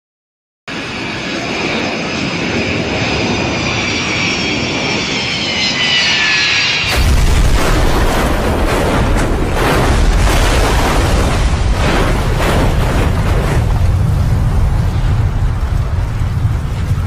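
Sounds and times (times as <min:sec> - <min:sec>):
jet engines whining: 0:00.7 - 0:17.0
crunching impacts: 0:06.9 - 0:15.4
deep crash rumble: 0:06.9 - 0:17.0.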